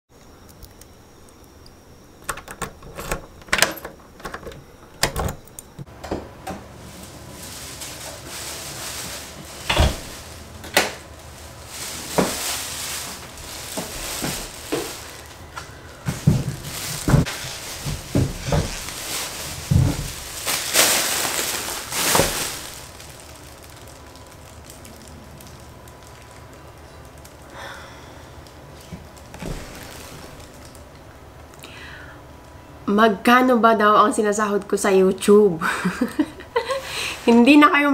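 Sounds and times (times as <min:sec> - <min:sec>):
door lock and handle clicks: 0:02.2 - 0:05.7
plastic bags rustling: 0:06.7 - 0:32.0
dull thumps of bags set down: 0:11.7 - 0:23.4.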